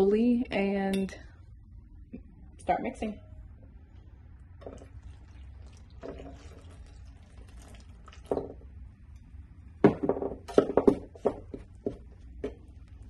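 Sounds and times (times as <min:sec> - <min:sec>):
water pouring: 0:04.6 - 0:08.8.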